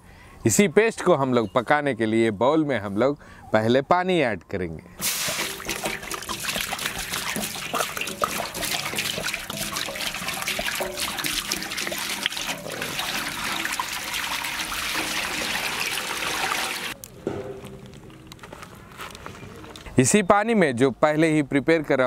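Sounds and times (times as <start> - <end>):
water pouring into metal pot: 5.0 - 17.0.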